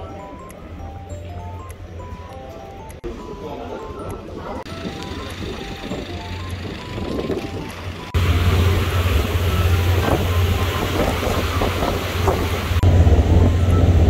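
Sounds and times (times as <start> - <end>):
wind buffeting microphone: 4.6 - 14.0
wash of boat wake: 8.2 - 14.0.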